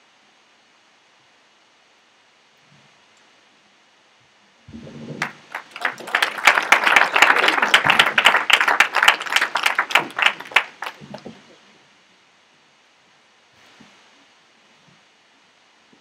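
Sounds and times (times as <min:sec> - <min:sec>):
audience applauding: 0:05.2 - 0:11.4.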